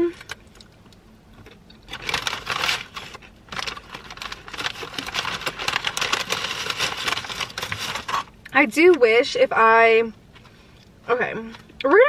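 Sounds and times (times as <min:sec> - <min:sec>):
paper wrapping crinkling: 0:01.9 - 0:08.4.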